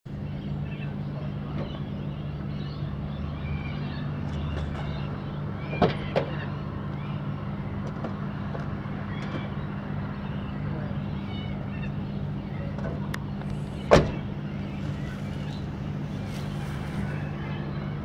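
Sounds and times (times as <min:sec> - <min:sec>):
low hum of urban background: 0:00.1 - 0:18.0.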